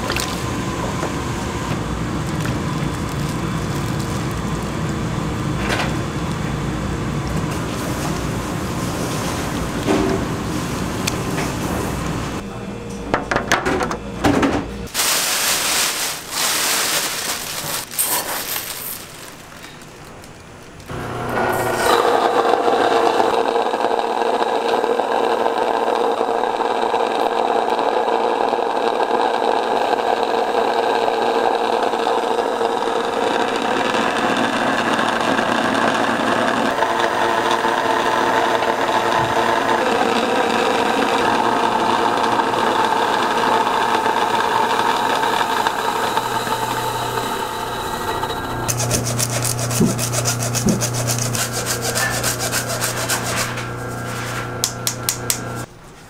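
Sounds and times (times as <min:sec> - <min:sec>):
electric grain mill grinding: 0:14.9 - 0:19.6, 0:20.8 - 0:55.7
stick scraping flour through sieve: 0:48.7 - 0:54.6.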